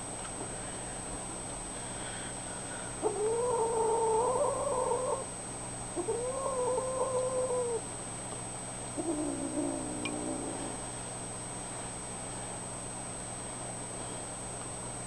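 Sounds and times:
kittens meowing: 6.0s - 7.8s.

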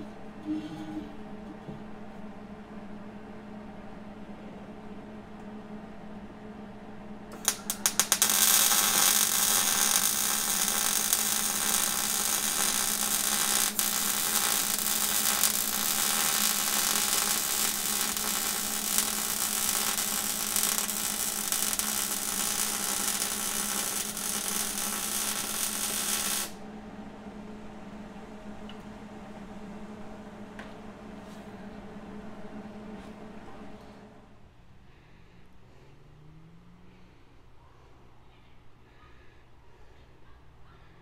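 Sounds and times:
arc welding sizzling hiss: 7.3s - 26.6s
welding arc strikes: 7.3s - 26.6s.

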